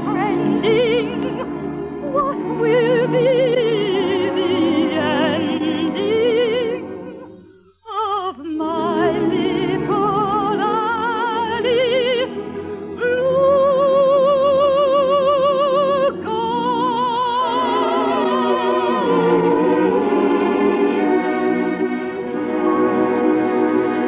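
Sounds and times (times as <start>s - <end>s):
orchestral accompaniment: 0.0s - 7.5s, 8.6s - 24.0s
operatic singing: 0.0s - 24.0s.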